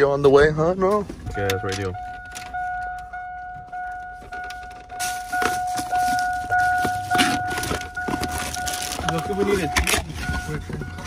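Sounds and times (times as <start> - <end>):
dashboard warning chime: 0.0 - 11.0
cardboard box rustling and rattling: 5.1 - 10.9.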